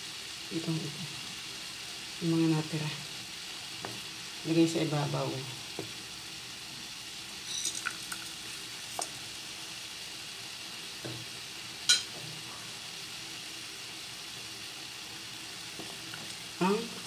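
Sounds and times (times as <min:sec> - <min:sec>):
sizzling hiss from a pot: 0:00.0 - 0:17.0
light clicks of peppercorns dropping: 0:07.5 - 0:08.4.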